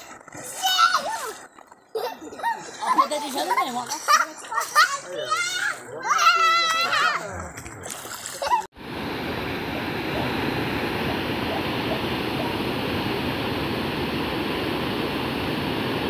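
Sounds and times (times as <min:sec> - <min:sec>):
floodwater rushing over drop: 0:07.4 - 0:16.0.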